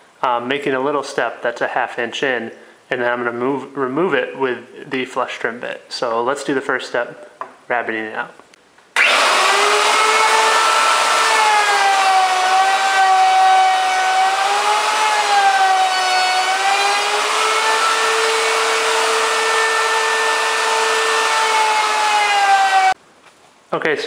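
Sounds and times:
router whining: 0:09.0 - 0:23.0.

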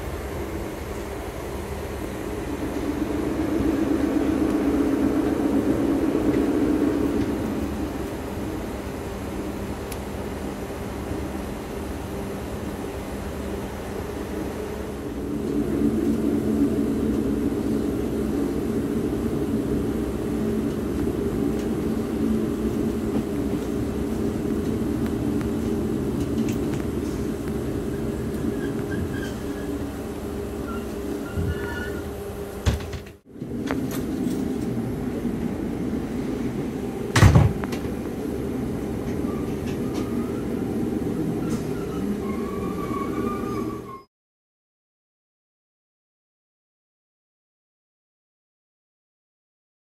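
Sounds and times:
diesel engine droning hum: 0:00.0 - 0:43.0
train wheels rumbling on track: 0:00.0 - 0:44.1.

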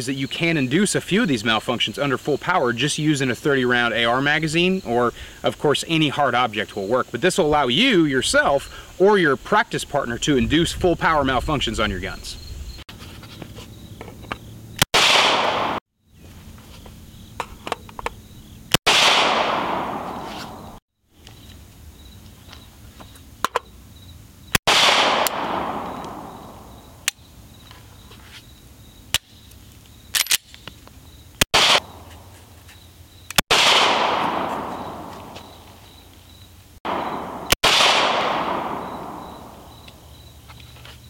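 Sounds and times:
pistol shots with echo: 0:14.9 - 0:15.8, 0:18.9 - 0:20.8, 0:24.7 - 0:26.8, 0:31.5 - 0:32.0, 0:33.5 - 0:35.4, 0:36.9 - 0:39.8.

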